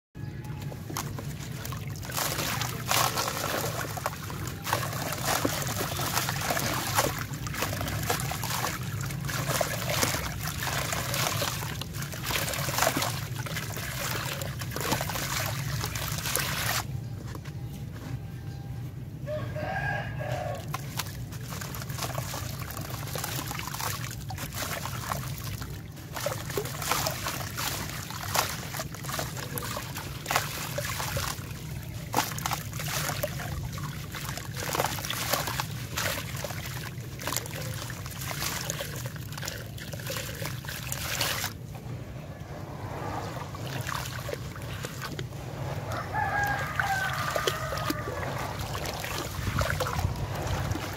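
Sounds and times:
grit trickling into water: 0:00.6 - 0:16.9, 0:19.6 - 0:50.9
rooster crowing: 0:19.2 - 0:20.7, 0:45.8 - 0:48.8.

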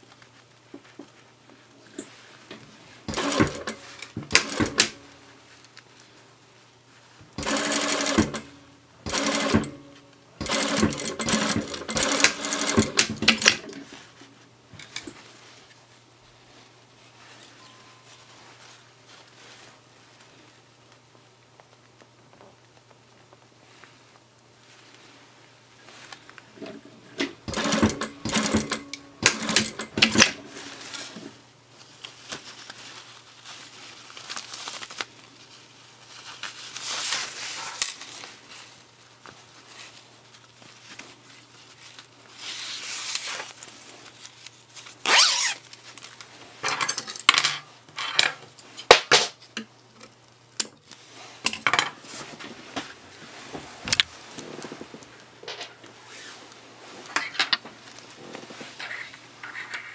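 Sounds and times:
industrial sewing machine stitching: 0:03.1 - 0:05.0, 0:07.4 - 0:13.8, 0:27.4 - 0:30.5
fabric and zip rustling: 0:42.3 - 0:45.8, 0:52.0 - 0:57.2.

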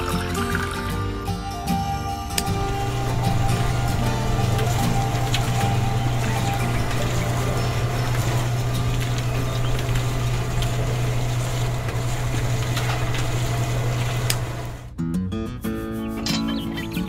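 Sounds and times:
small electric motor humming: 0:02.5 - 0:14.9.

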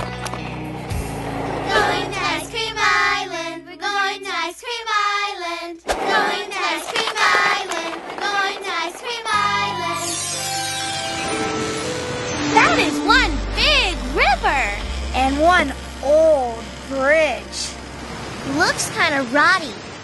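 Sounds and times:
high childlike voices singing: 0:01.6 - 0:10.4.

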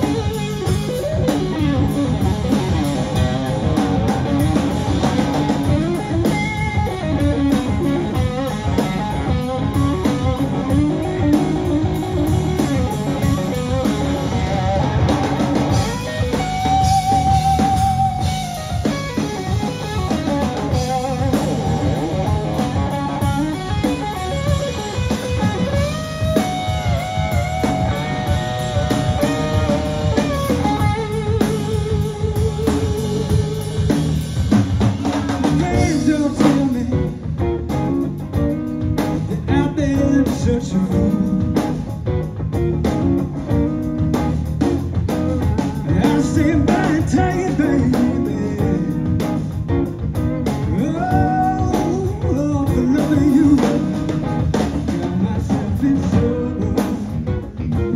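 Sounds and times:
bass guitar: 0:00.0 - 0:57.9
drum kit: 0:00.0 - 0:57.9
electric guitar lead with bends: 0:00.0 - 0:57.9.

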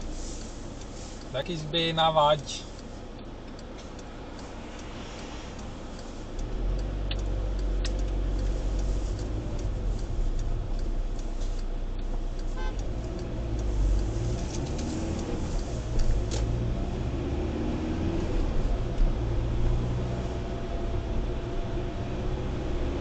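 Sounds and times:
car engine and road rumble: 0:00.0 - 0:23.0
rapid ticks: 0:00.3 - 0:16.6
sharp clicks: 0:02.7 - 0:16.6.

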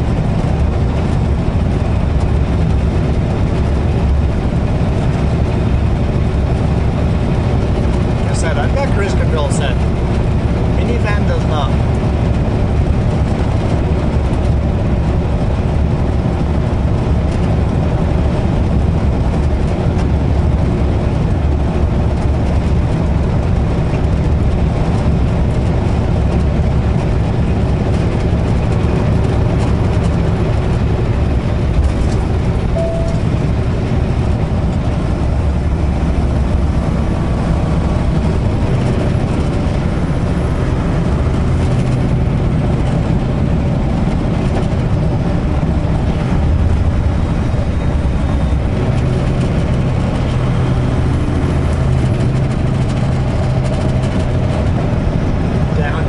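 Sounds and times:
road and tyre noise: 0:00.0 - 0:56.0
truck diesel engine running: 0:00.0 - 0:56.0.

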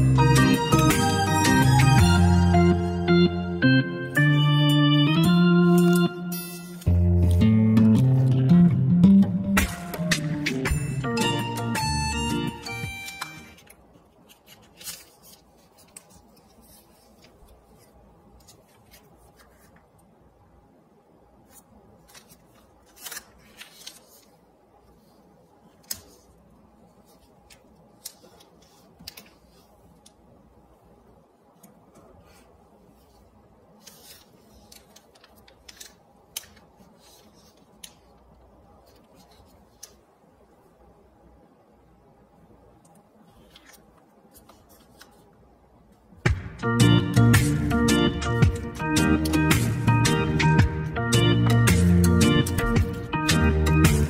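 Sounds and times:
paper rustling and crackling: 0:13.6 - 0:20.1, 0:21.4 - 0:30.2, 0:31.9 - 0:40.2, 0:43.2 - 0:45.4.

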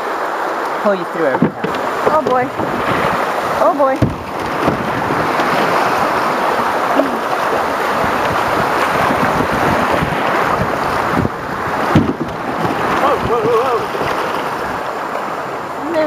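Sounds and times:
whitewater roaring over rocks: 0:00.0 - 0:16.0
short knocks: 0:01.2 - 0:06.0, 0:11.2 - 0:14.4.

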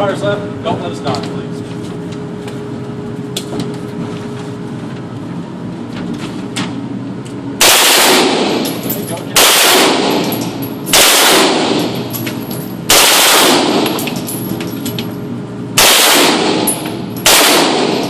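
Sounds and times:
ventilation hum: 0:00.0 - 0:18.0
automatic gunfire bursts: 0:07.6 - 0:08.6, 0:09.4 - 0:10.3, 0:10.9 - 0:11.9, 0:12.9 - 0:14.0, 0:15.8 - 0:18.0.

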